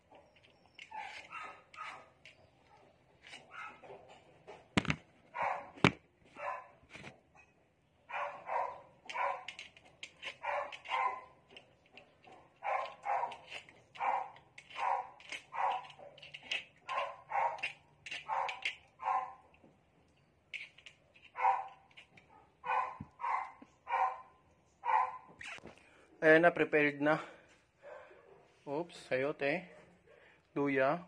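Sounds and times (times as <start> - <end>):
dog barking: 3.5 - 3.9, 5.3 - 5.8, 6.4 - 6.8, 8.1 - 9.5, 10.4 - 11.3, 12.6 - 16.2, 16.9 - 19.4, 21.4 - 25.3, 27.8 - 28.6.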